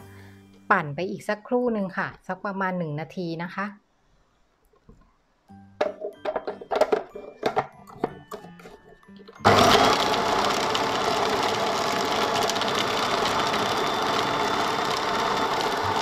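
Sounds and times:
food processor running: 9.4s - 16.0s.

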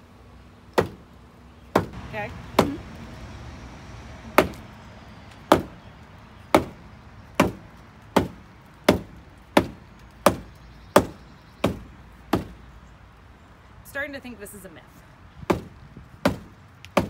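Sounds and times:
shoe whacking against wall: 0.8s - 1.0s, 1.8s - 2.0s.

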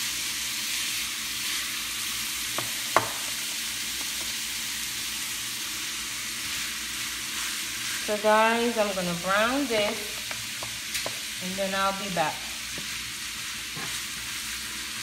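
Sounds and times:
meat sizzling in a frying pan: 0.0s - 15.0s
sharp knocks: 2.6s - 3.2s
wooden spoon stirring meat: 9.6s - 11.3s.

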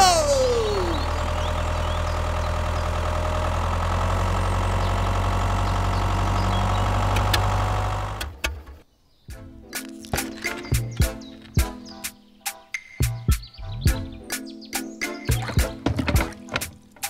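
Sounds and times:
engine humming with whine: 0.0s - 8.7s.

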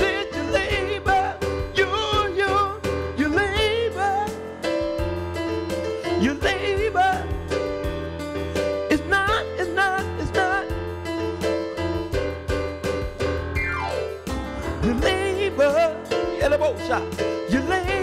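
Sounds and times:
man singing gospel: 0.0s - 4.4s, 6.0s - 7.5s, 8.9s - 10.8s, 14.8s - 18.0s
electric keyboard accompaniment: 0.0s - 18.0s
low bass: 10.2s - 18.0s.

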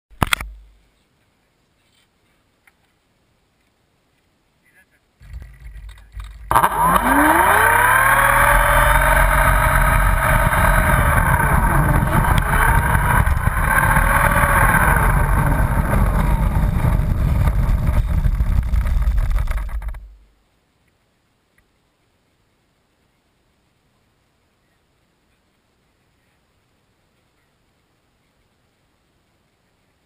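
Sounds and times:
low prop wash rumble: 5.2s - 20.4s
model airplane motor whine: 6.2s - 20.0s.

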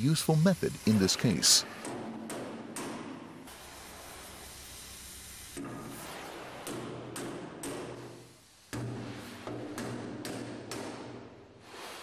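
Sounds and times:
gas torch flame hissing: 0.0s - 7.0s.

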